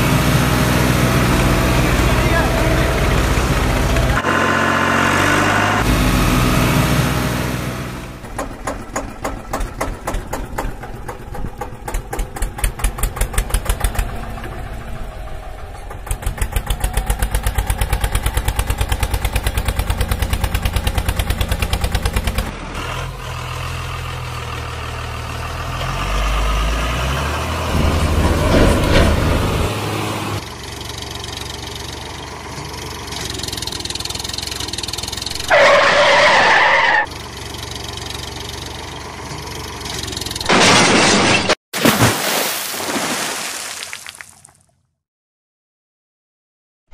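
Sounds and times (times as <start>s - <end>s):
tractor engine chugging: 0.0s - 5.2s, 8.2s - 22.5s, 30.4s - 36.4s, 37.1s - 40.4s.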